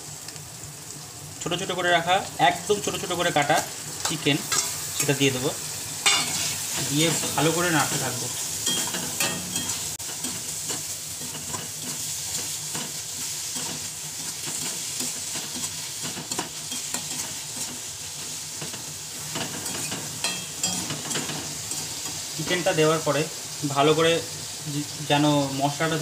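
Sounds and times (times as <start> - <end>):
food sizzling in a wok: 0.0 - 26.0
utensil scraping a pan: 6.0 - 22.2.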